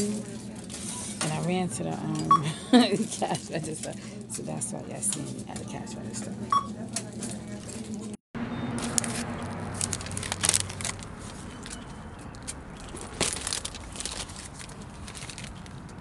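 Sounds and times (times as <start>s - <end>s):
shopping cart rattling: 12.8s - 15.7s.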